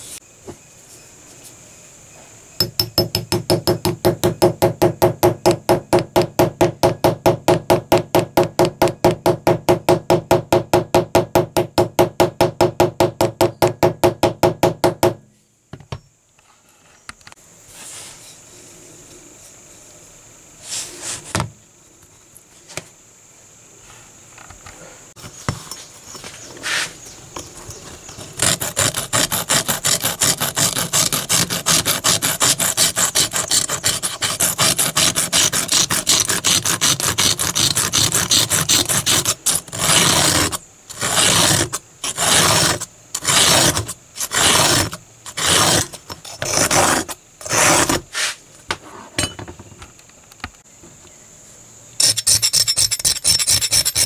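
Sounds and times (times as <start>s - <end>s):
metal tool scraping knife blade: 28.1s - 48.4s, 52.0s - 54.0s.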